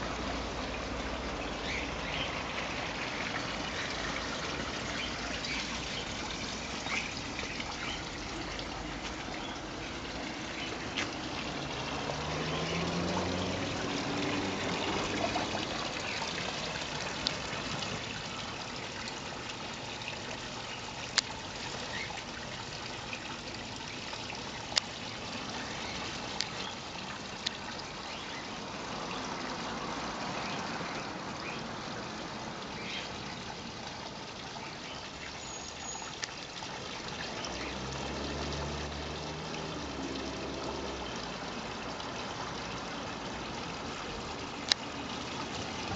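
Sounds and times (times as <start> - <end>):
low engine hum: 0.0 - 18.3
water splashing from waterfall spout: 0.0 - 45.9.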